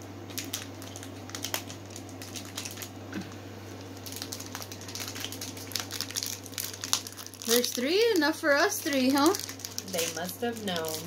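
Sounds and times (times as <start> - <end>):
steady low hum: 0.0 - 11.0
plastic candy wrappers crackling: 0.2 - 11.0.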